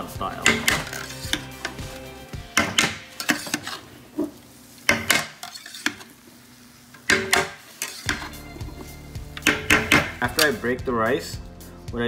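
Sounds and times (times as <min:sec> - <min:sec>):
metal spatula scraping steel pot: 0:00.4 - 0:01.9, 0:02.6 - 0:03.9, 0:04.9 - 0:06.1, 0:07.1 - 0:10.7.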